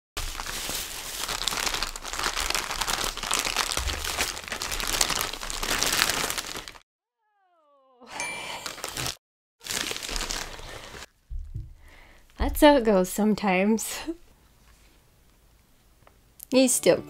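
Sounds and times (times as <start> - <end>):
bubble wrap crinkling: 0.2 - 6.8, 8.5 - 13.0.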